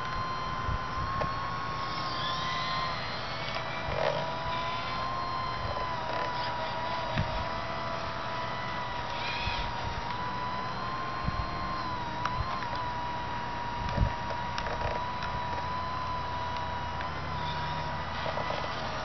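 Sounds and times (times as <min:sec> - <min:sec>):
toy excavator drive whining: 0:00.0 - 0:19.0
small clicks and knocks: 0:13.8 - 0:15.7.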